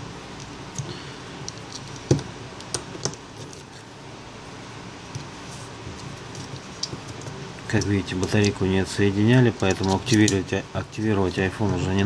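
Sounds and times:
low steady hum: 0:00.0 - 0:12.0
phone parts clicking: 0:09.6 - 0:10.5.

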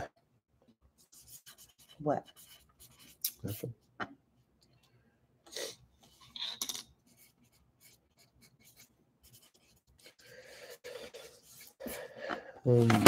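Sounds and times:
paper scratching and rubbing: 0:01.0 - 0:03.7, 0:07.1 - 0:12.1.

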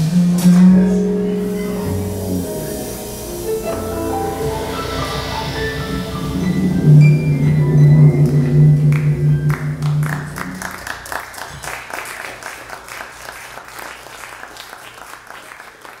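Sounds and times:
jazz chord on keyboard and bass: 0:00.0 - 0:10.8
audience applause: 0:08.2 - 0:16.0.

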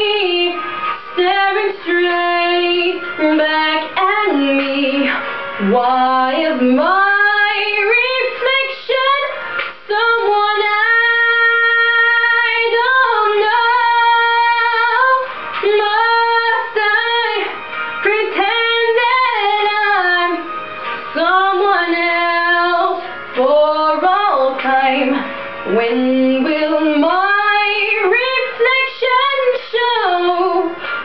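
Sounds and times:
woman singing a ballad: 0:00.0 - 0:31.0.

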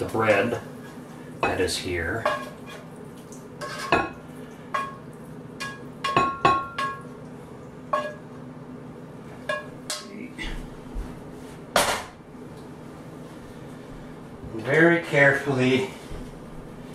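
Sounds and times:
utensil clinking on glass bowl: 0:05.6 - 0:07.1, 0:07.9 - 0:08.2.

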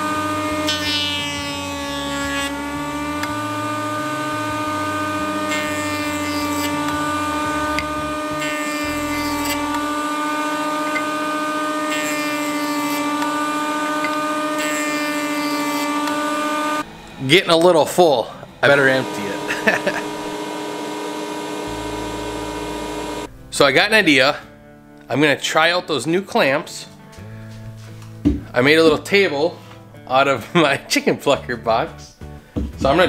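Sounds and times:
cutterhead rasping wood: 0:00.0 - 0:16.9
jointer motor whine: 0:00.0 - 0:23.3.

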